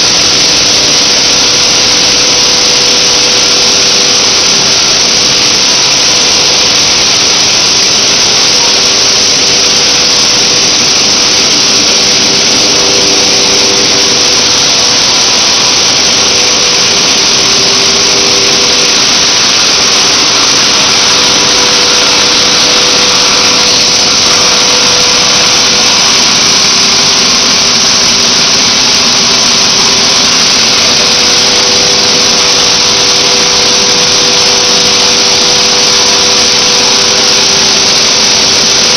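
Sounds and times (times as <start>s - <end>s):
machinery rushing din: 0.0s - 38.9s
motor hum: 0.0s - 38.9s.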